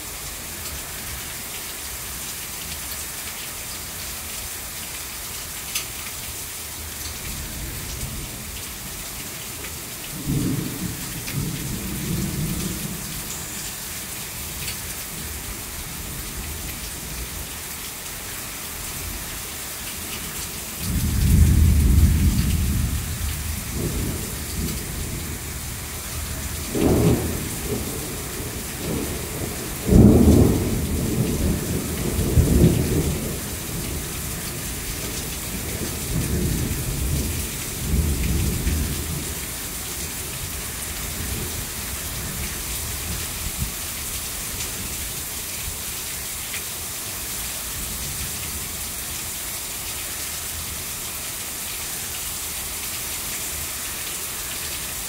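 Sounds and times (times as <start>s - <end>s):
heavy rain falling: 0.0s - 55.0s
thunder rumbling: 20.8s - 34.0s.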